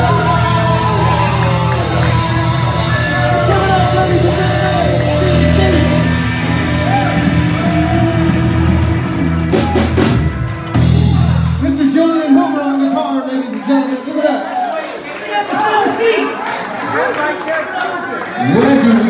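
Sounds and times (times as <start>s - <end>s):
electric guitar: 0.0s - 11.8s
bass guitar: 0.0s - 12.0s
drums: 0.0s - 12.6s.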